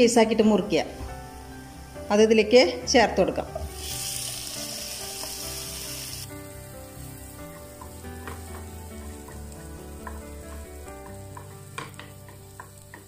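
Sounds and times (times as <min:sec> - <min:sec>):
paste and tomatoes sizzling in a pan: 0:03.6 - 0:13.0
sharp high hiss: 0:03.7 - 0:07.6.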